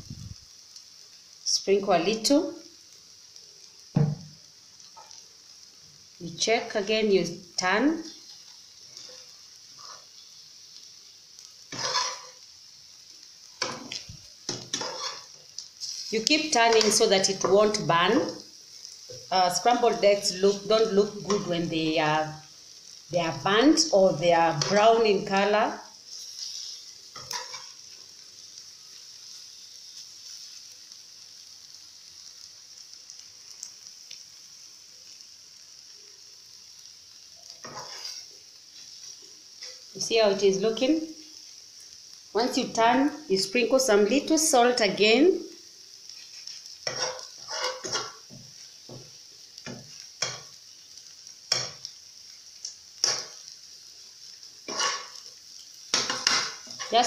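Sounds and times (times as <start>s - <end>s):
eggs sizzling in frying pan: 0.0s - 57.0s
metal spoon scraping pan: 11.7s - 12.4s, 13.6s - 15.3s, 26.2s - 27.8s, 37.6s - 38.2s, 46.2s - 48.2s, 54.7s - 55.2s, 56.0s - 57.0s.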